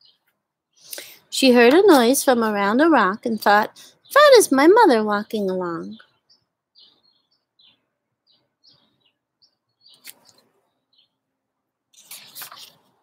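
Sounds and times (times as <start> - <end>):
small bird chirping: 0.0 - 11.2, 11.9 - 12.9
paper pages rustling: 11.9 - 13.0.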